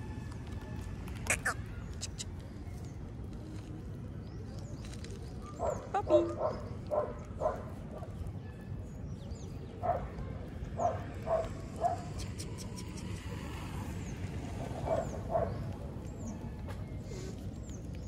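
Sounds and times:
dog yipping: 1.3 - 2.2.

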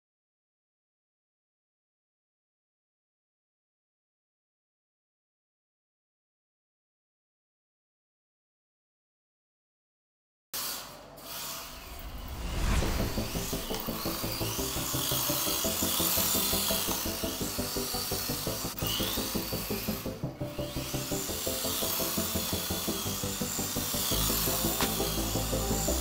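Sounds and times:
small electric motor whining: 10.6 - 26.0
background music: 12.0 - 26.0.

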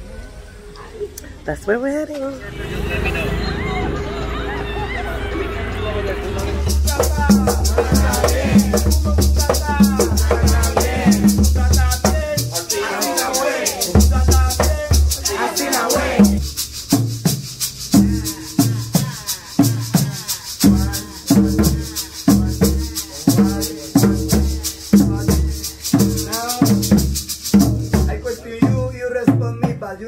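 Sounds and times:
voices calling out: 2.3 - 16.4, 17.9 - 26.8
maracas shaking: 6.4 - 29.9
hand drums rhythm: 6.6 - 30.0.

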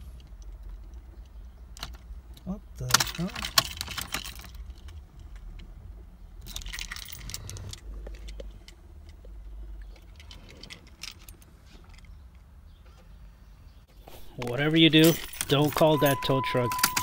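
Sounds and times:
car keys jangling: 2.8 - 5.4, 6.4 - 9.2, 14.5 - 17.0.

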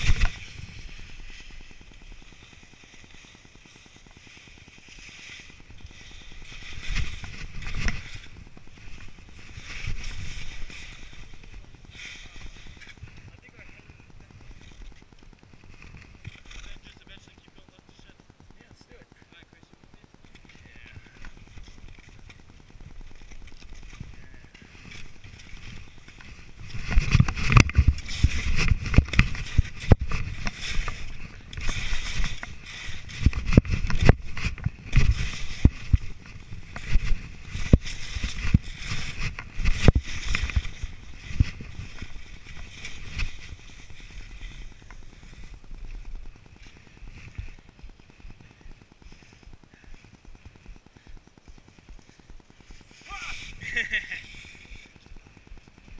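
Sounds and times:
skis scraping through snow: 0.0 - 55.9
gear knocking and rattling: 19.6 - 53.0.

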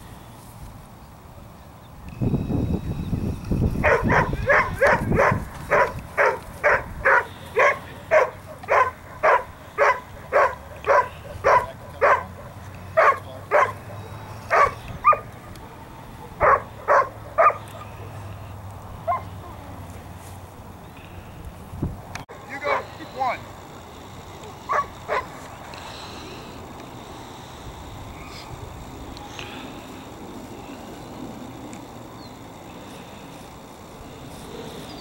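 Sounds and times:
dog barking: 3.8 - 15.3, 16.2 - 17.7, 19.0 - 19.3, 24.7 - 25.3.

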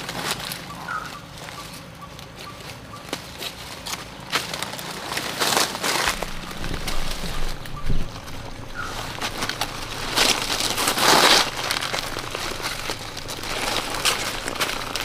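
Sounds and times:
dry leaves rustling and crackling: 0.0 - 15.0
twigs snapping: 3.0 - 15.0.

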